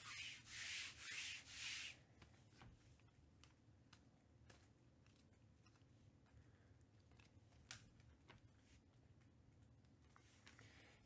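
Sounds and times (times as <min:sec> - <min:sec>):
cards sliding swishes: 0:00.0 - 0:02.3.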